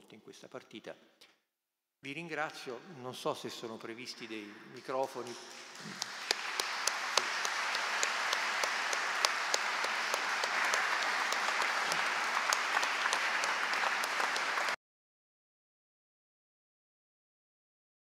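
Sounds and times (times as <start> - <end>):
audience applauding: 4.7 - 14.8.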